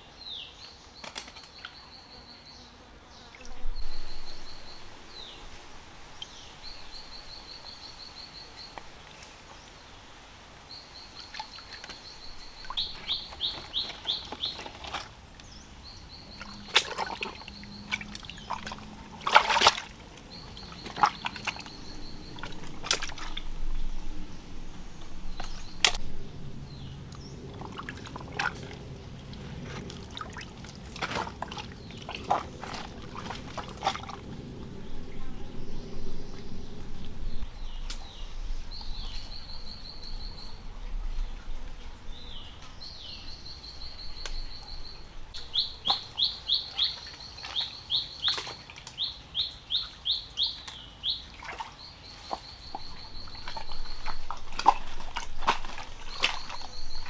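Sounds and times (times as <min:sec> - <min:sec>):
water trickling in a rocky stream: 0:06.1 - 0:09.9, 0:10.6 - 0:57.0
splashing footsteps in water: 0:16.3 - 0:23.7, 0:27.4 - 0:34.4, 0:45.6 - 0:49.0, 0:50.7 - 0:57.0.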